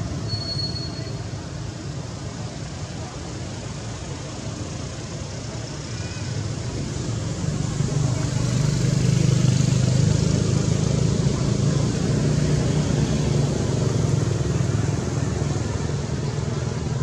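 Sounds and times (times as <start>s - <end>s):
vehicle engine droning: 6.5s - 17.0s.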